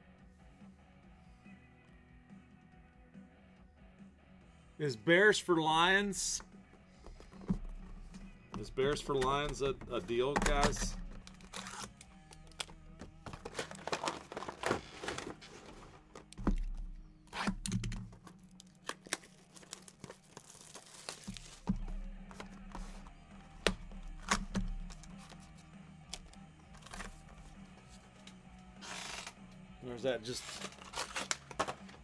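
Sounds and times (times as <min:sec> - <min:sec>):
cardboard boxes knocking on desk: 0:06.9 - 0:11.4
plastic wrap tearing and crinkling: 0:11.0 - 0:12.7, 0:13.3 - 0:21.7, 0:30.3 - 0:32.0.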